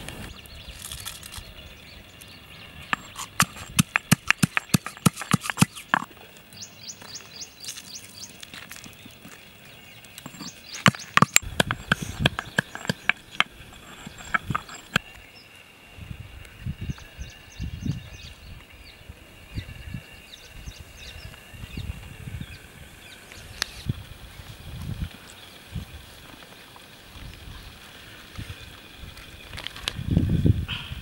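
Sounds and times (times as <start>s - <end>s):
stone pestle pounding in mortar: 3.0s - 6.1s, 10.4s - 15.0s.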